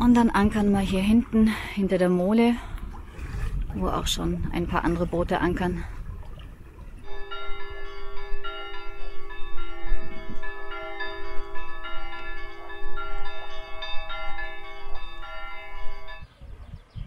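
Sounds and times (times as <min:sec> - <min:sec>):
low rumble of wind: 0:00.0 - 0:17.0
bell-like chiming melody: 0:07.0 - 0:16.3
steady low held tone: 0:07.0 - 0:16.3.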